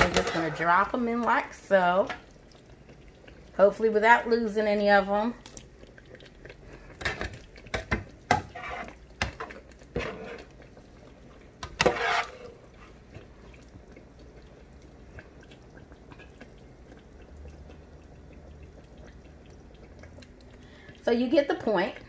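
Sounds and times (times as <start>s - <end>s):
metal strainer scraping a frying pan: 0.0s - 1.0s, 8.3s - 9.0s, 9.8s - 10.5s, 11.6s - 12.9s
potatoes sizzling in oil: 0.0s - 22.0s.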